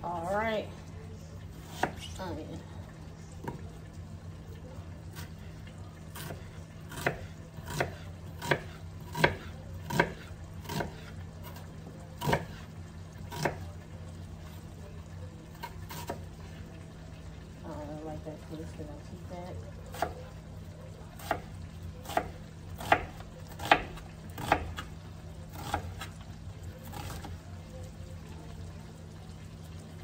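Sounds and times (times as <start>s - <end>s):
knife chopping on plastic board: 6.2s - 11.0s.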